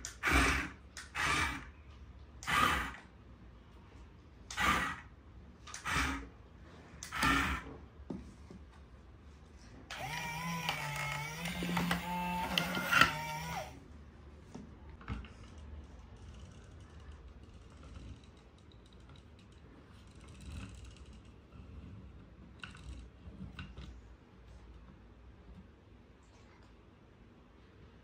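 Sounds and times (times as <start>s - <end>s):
plastic toys clicking and knocking: 9.9s - 13.6s, 14.9s - 24.1s
toy motor and gearbox whining: 9.9s - 13.8s.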